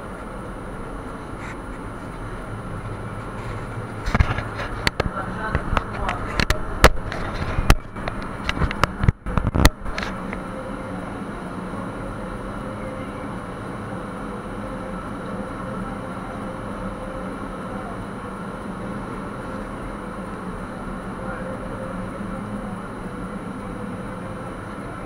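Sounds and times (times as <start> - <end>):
mechanical drone with low hum: 0.0 - 25.0
knocks and clatters of climbing: 3.1 - 10.2.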